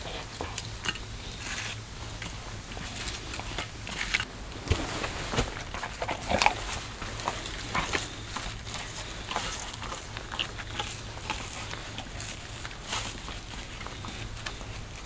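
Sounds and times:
dog vocalizing: 5.7s - 15.0s.

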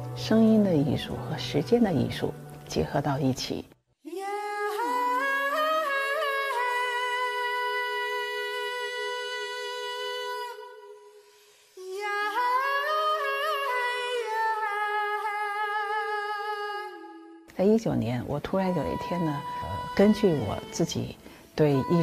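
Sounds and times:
voices singing in harmony: 18.6s - 22.0s.

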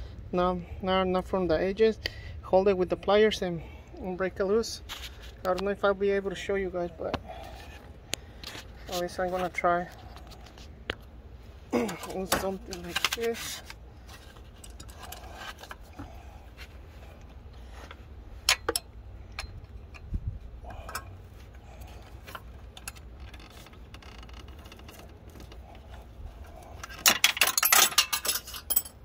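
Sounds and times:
metal tools clinking and scraping: 11.8s - 16.7s, 17.7s - 20.1s, 20.7s - 29.0s.

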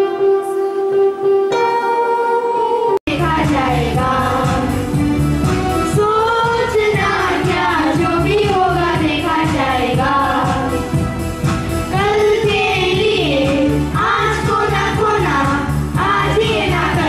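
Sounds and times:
children singing into microphones: 2.6s - 5.0s, 5.9s - 10.8s, 11.9s - 17.0s
music with steady beat: 3.1s - 17.0s.

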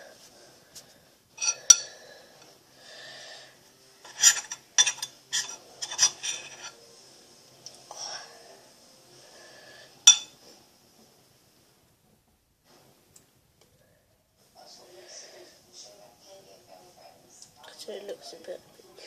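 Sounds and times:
metal spoon scraping ceramic bowl: 1.4s - 1.9s, 4.0s - 6.8s, 10.1s - 10.3s.

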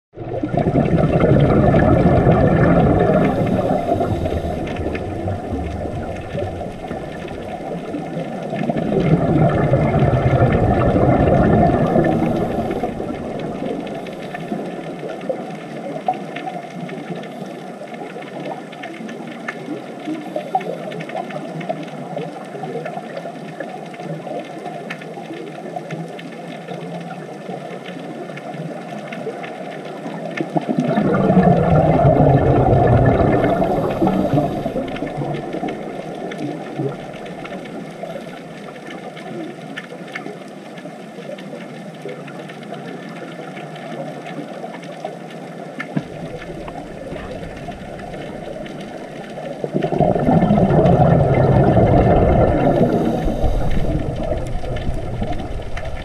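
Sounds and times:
diver exhaling bubbles: 0.2s - 15.4s, 30.6s - 38.4s, 46.0s - 56.0s
underwater hiss: 0.3s - 15.4s, 30.8s - 38.5s, 46.1s - 56.0s.

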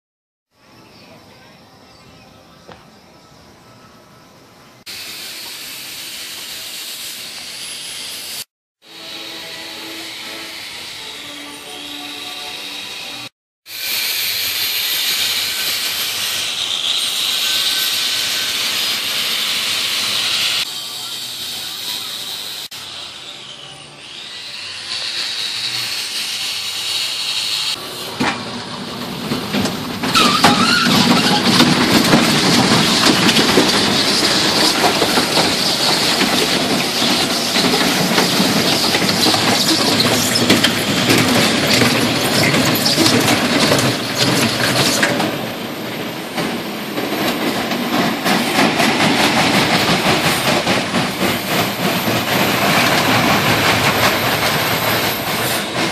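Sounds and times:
roller coaster wheels rumbling: 27.8s - 55.9s.

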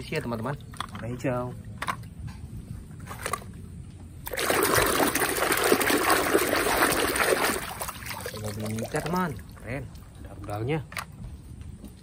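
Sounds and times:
muddy water splashing in basin: 4.2s - 10.6s.

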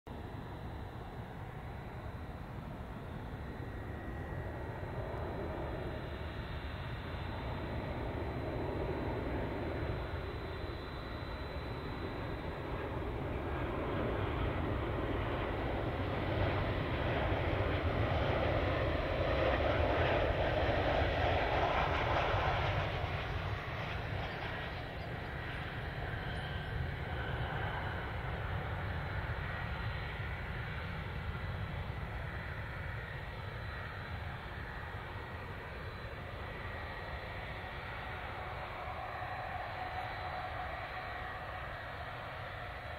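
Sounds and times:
jet engine roar: 0.1s - 42.9s.

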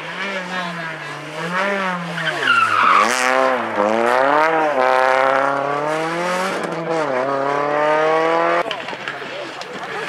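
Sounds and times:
rally car engine revving: 0.0s - 9.6s.

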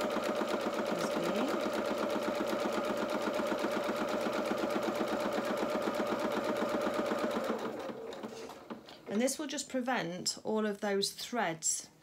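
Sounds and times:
sewing machine stitching: 0.0s - 9.2s.

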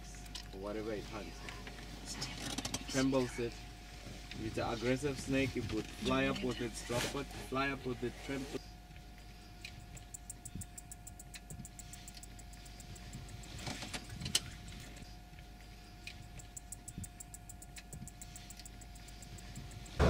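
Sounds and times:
thin steady hum: 0.0s - 20.0s
rapid high ticking: 9.0s - 20.0s.

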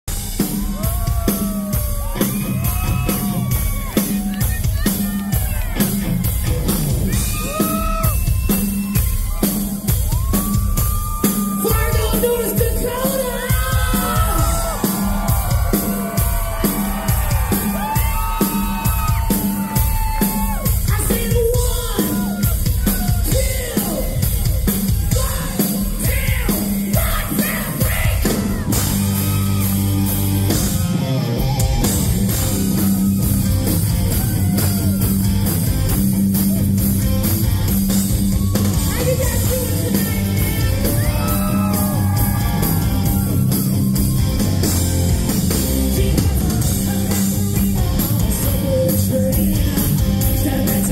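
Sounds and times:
hard rock band playing: 0.0s - 50.9s
pounding drums: 0.1s - 50.9s
distorted guitar and bass chords: 1.6s - 8.5s, 11.8s - 50.9s
person yelling and singing: 10.2s - 16.3s, 17.7s - 24.3s, 24.9s - 28.8s, 38.6s - 43.8s.

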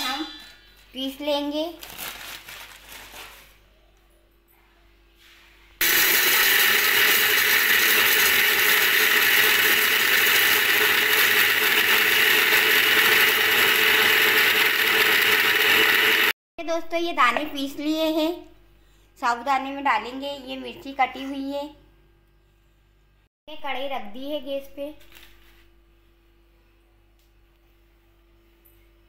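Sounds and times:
mixer grinder grinding peanuts: 5.8s - 16.4s.

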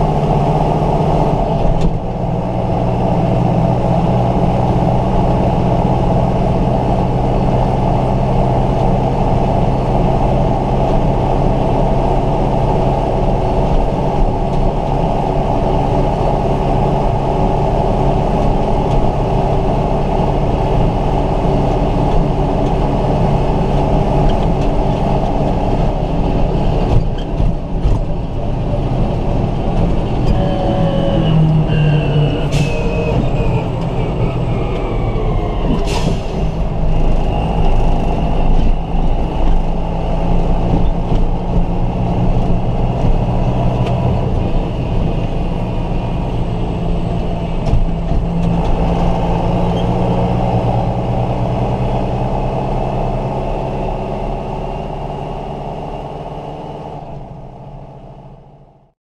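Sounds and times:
tractor diesel engine running: 0.0s - 58.9s.

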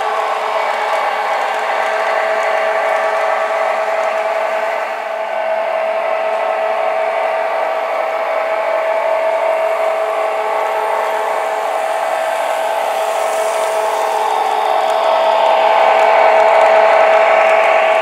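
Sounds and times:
model train motors whining: 0.0s - 18.0s
rushing hiss: 9.7s - 16.3s.

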